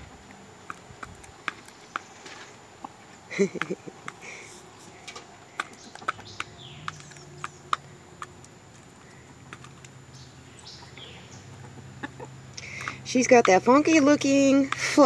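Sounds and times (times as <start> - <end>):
beak tapping plastic tub: 2.8 - 8.9, 12.6 - 15.0
faint bird chirps: 10.1 - 13.1.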